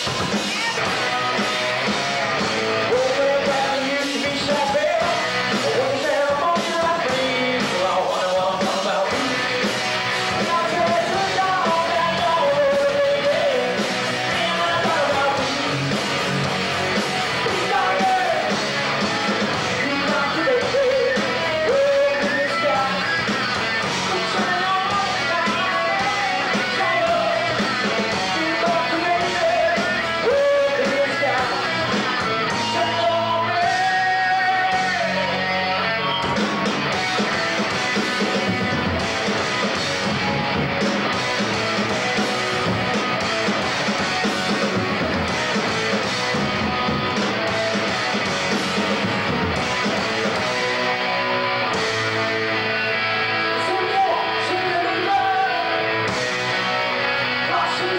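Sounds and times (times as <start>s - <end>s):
bass guitar: 0.0s - 57.9s
drums: 0.0s - 57.9s
electric guitars: 0.0s - 57.9s
person singing lead vocal: 2.7s - 16.4s, 17.2s - 19.0s, 19.6s - 36.2s, 52.8s - 56.6s, 57.3s - 57.9s.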